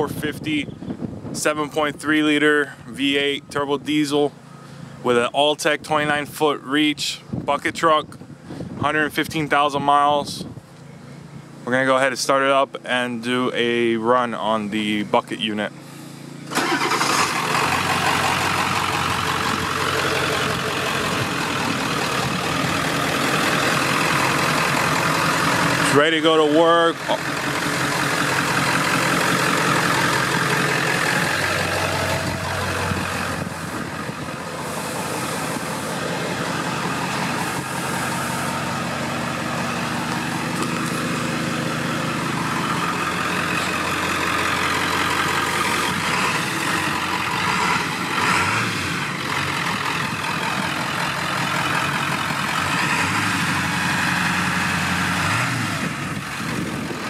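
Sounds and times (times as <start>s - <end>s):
diesel truck engine idling: 0.0s - 7.5s, 8.2s - 57.0s.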